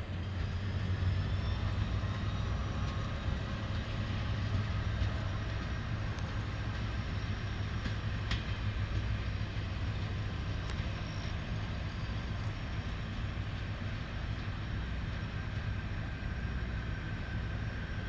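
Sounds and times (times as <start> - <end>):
train rolling on rails: 0.0 - 18.0.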